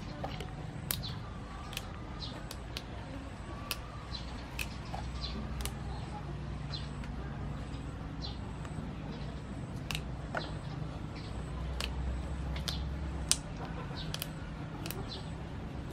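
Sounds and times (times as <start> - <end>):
beans snapping: 0.2 - 3.0, 3.6 - 6.0, 9.8 - 10.5, 11.7 - 15.2.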